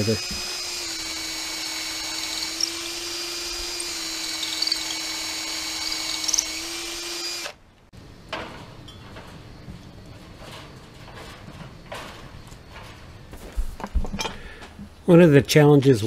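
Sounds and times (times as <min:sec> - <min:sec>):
cordless drill drilling into wood: 0:00.0 - 0:07.6.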